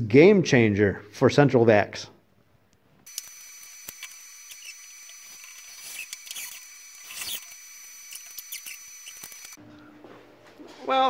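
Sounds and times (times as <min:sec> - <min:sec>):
steady high hiss with whine: 0:03.1 - 0:09.6.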